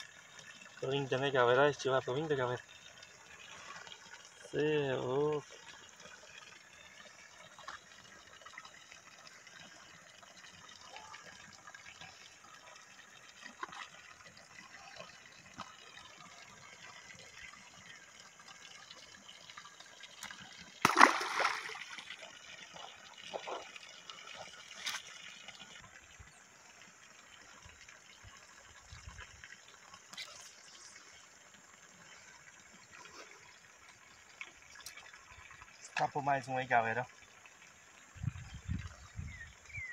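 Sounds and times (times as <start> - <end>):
small splashes: 5.2 - 26.0
splash in pond water: 20.0 - 25.7.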